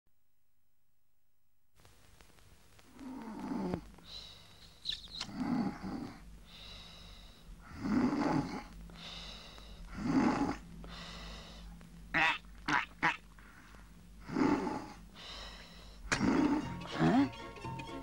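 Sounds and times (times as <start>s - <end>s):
cartoon snoring: 3.0s - 3.8s, 5.2s - 6.2s, 7.6s - 8.7s, 9.9s - 10.6s, 14.2s - 15.0s, 16.1s - 17.3s.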